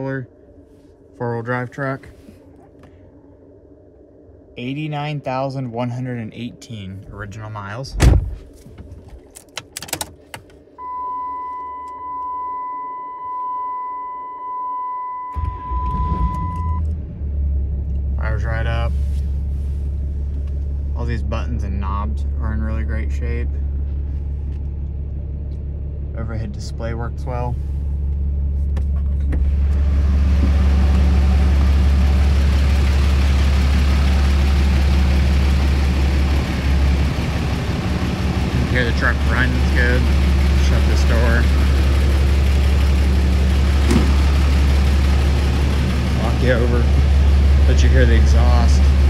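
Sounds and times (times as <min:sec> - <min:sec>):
keys clicking in ignition: 0:09.1 - 0:10.6
dashboard warning chime: 0:10.8 - 0:16.8
diesel engine idling: 0:15.4 - 0:49.0.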